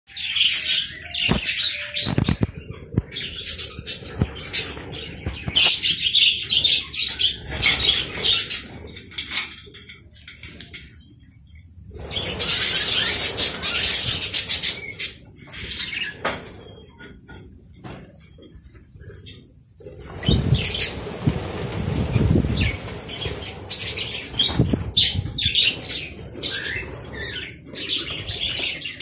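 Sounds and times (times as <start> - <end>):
budgerigars chirping: 12.1 - 16.2
wings flapping: 19.8 - 29.0.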